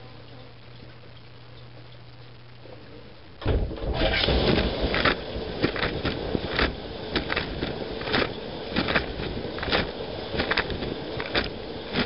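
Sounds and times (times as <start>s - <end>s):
faint low hum: 0.0s - 12.0s
water spraying and splashing: 3.8s - 12.0s.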